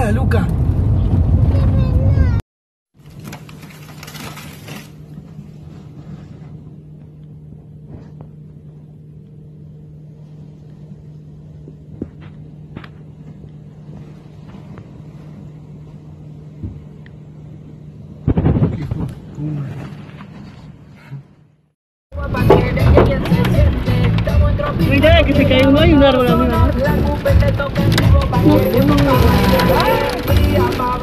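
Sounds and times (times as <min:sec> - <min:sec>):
car cabin drone: 0:00.0 - 0:02.4, 0:05.0 - 0:21.6
wind noise gust: 0:00.5 - 0:02.4.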